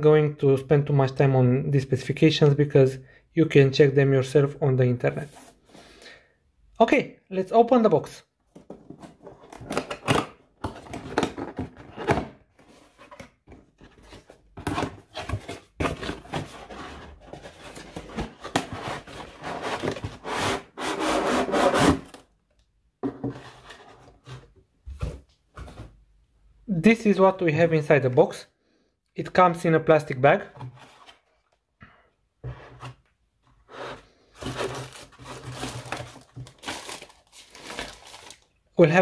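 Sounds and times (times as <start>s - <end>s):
cardboard scraping and knocking: 10.6s - 22.1s, 23.0s - 26.0s, 32.4s - 33.0s, 33.7s - 36.6s.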